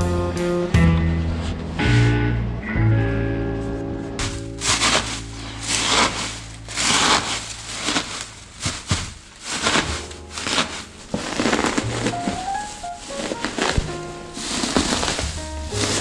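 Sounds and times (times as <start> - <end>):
dry leaves crunching and rustling: 4.2 - 16.0.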